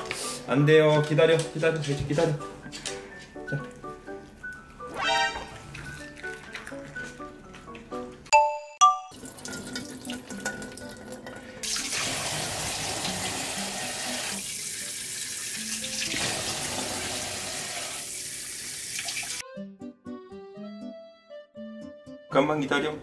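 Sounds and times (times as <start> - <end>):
tap water running into steel bowl: 9.1 - 19.4.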